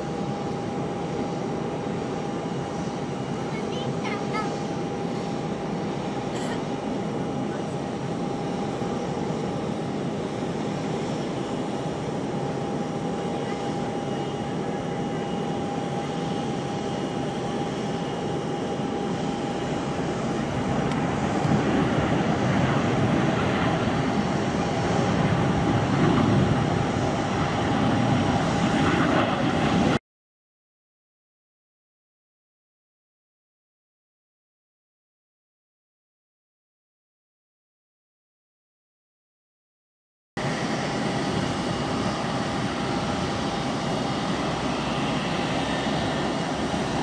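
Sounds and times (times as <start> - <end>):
jet engine rumble: 0.0 - 30.0, 40.4 - 47.0.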